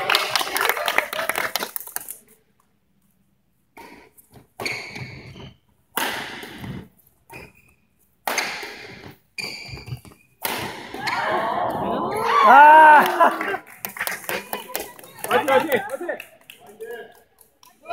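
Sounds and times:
racket striking shuttlecock: 0:10.4 - 0:11.0.

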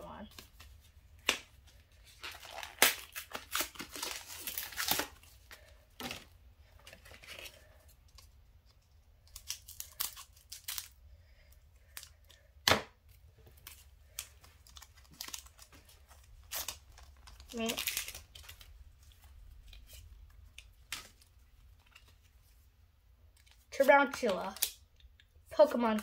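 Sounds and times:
foil pack tearing and crinkling: 0:02.1 - 0:06.2, 0:09.3 - 0:11.0, 0:16.4 - 0:18.7.

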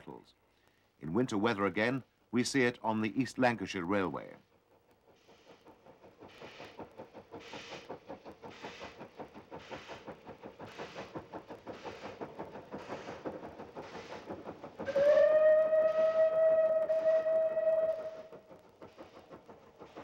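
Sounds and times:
steam locomotive exhaust beats: 0:04.0 - 0:20.0
steam whistle: 0:14.8 - 0:18.3.

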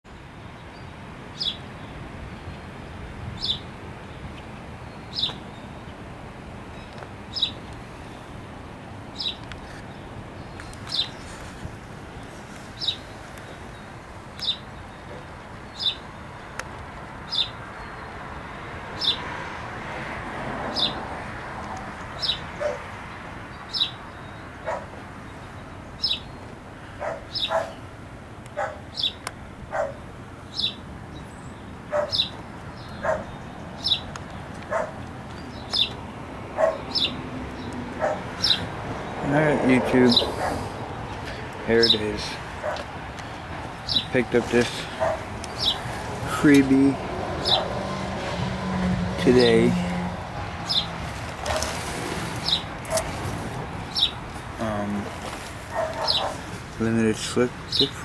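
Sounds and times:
bird chirping: 0:00.1 - 0:02.8, 0:03.4 - 0:06.0, 0:06.7 - 0:08.4, 0:09.0 - 0:11.5, 0:12.1 - 0:19.3, 0:22.1 - 0:27.9, 0:28.6 - 0:47.7, 0:50.6 - 0:51.7, 0:52.4 - 0:53.1, 0:53.8 - 0:55.0, 0:55.7 - 0:56.5
dogs barking: 0:22.5 - 0:23.0, 0:24.6 - 0:25.0, 0:27.0 - 0:27.8, 0:28.5 - 0:29.0, 0:29.7 - 0:30.1, 0:31.9 - 0:34.0, 0:34.6 - 0:35.0, 0:36.5 - 0:37.2, 0:37.9 - 0:38.8, 0:40.0 - 0:40.9, 0:42.4 - 0:43.0, 0:44.7 - 0:45.9, 0:47.3 - 0:47.9, 0:51.4 - 0:51.8, 0:52.5 - 0:53.2, 0:55.6 - 0:56.5.

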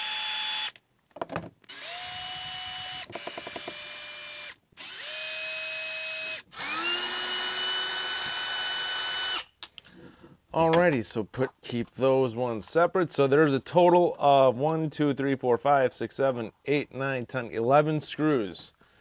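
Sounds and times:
cordless drill whining: 0:00.0 - 0:00.8, 0:01.7 - 0:09.5.

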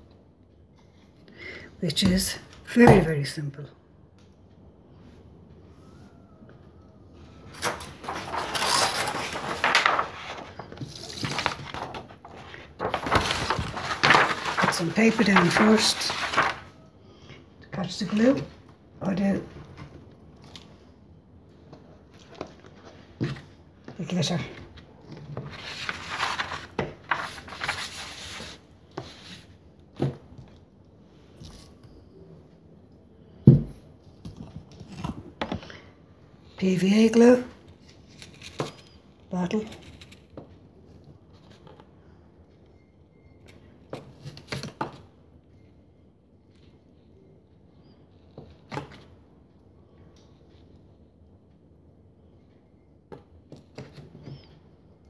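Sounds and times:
paper rustling: 0:07.4 - 0:16.8, 0:24.5 - 0:30.2, 0:37.7 - 0:40.4.

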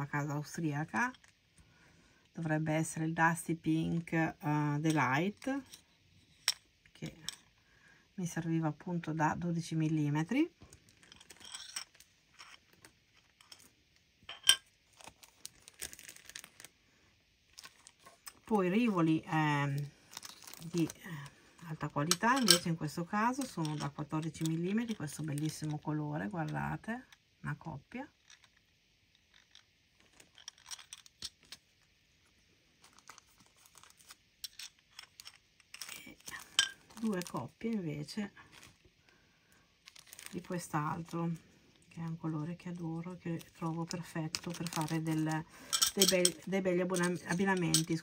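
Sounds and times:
plastic bag crinkling: 0:10.6 - 0:13.8, 0:14.5 - 0:16.8, 0:17.4 - 0:26.4, 0:28.2 - 0:31.9, 0:32.7 - 0:48.0
stones clicking and clinking: 0:10.9 - 0:13.7, 0:28.2 - 0:31.7, 0:32.8 - 0:37.1.

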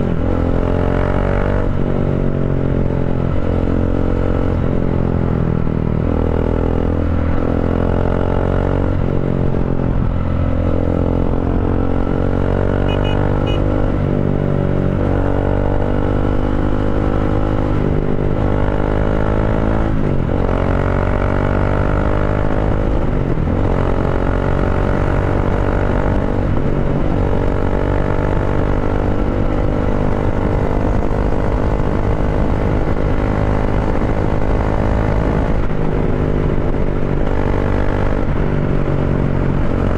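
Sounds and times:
motorcycle engine accelerating: 0:00.0 - 0:39.9.

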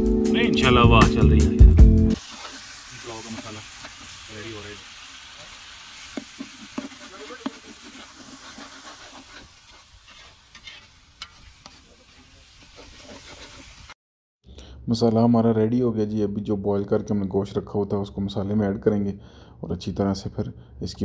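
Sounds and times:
food sizzling in hot oil: 0:02.1 - 0:14.0.

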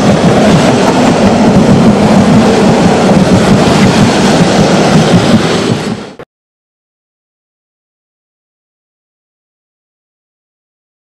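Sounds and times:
train wheels rumbling on rails: 0:00.0 - 0:06.2.

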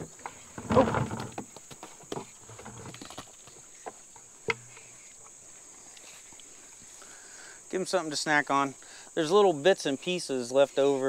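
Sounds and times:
pigs rooting and eating: 0:00.0 - 0:07.2
high insect buzz: 0:00.0 - 0:11.0.

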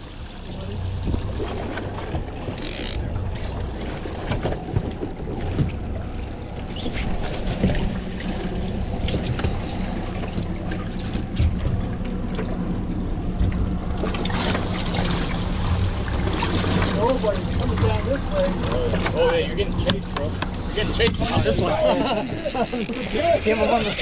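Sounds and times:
outboard motor running: 0:00.0 - 0:24.0
water noise: 0:00.0 - 0:24.0
wind: 0:00.0 - 0:24.0.

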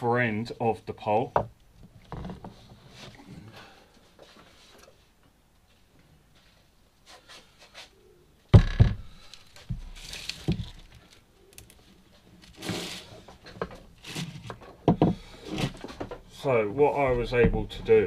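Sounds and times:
hose rustling and scraping: 0:09.0 - 0:18.0.

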